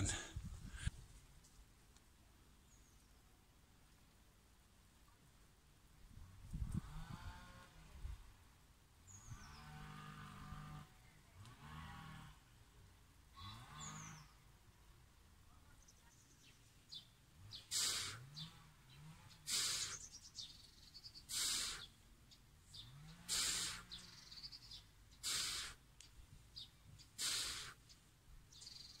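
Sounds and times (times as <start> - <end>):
man exhaling forcefully: 17.7 - 18.2, 19.5 - 20.0, 21.3 - 21.8, 23.3 - 23.9, 25.2 - 25.8, 27.2 - 27.8
faint bird chirps: 26.0 - 29.0.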